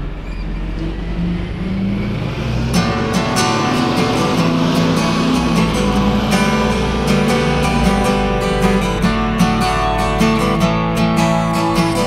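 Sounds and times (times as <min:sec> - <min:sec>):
acoustic guitar strumming: 0:01.5 - 0:12.0.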